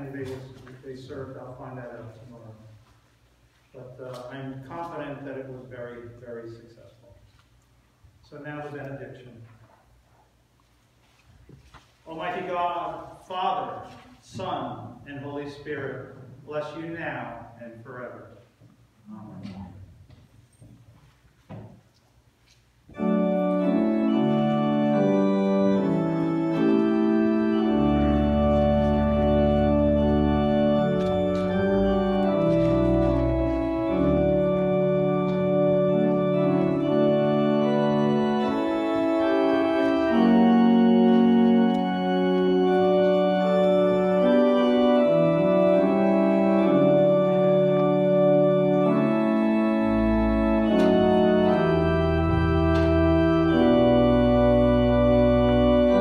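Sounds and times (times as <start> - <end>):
organ playing slow chords: 22.9 - 56.0.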